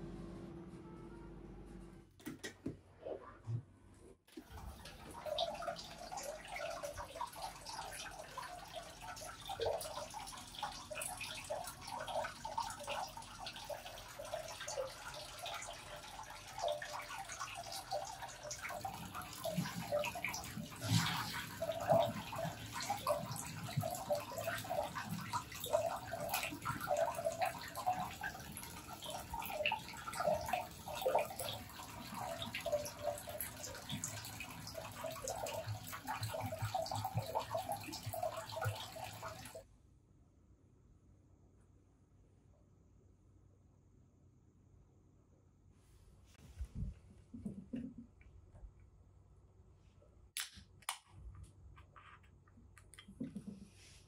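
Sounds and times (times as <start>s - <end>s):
water splashing into bath: 4.4s - 39.6s.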